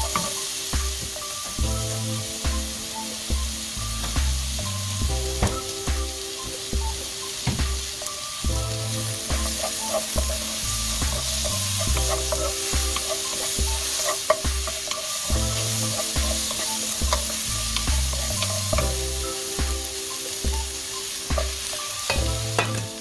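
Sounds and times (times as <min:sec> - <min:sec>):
vegetables sizzling in a wok: 0:00.0 - 0:23.0
wooden spatula scraping a pan: 0:09.0 - 0:19.2.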